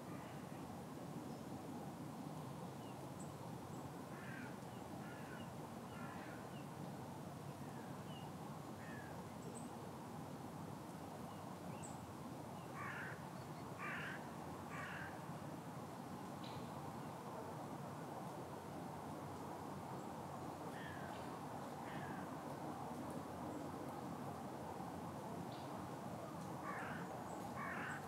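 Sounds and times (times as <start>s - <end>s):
outdoor background hiss: 0.0s - 28.0s
crows cawing: 4.1s - 5.4s, 12.8s - 13.2s, 13.8s - 15.2s, 20.7s - 21.2s, 21.9s - 22.3s, 26.6s - 28.0s.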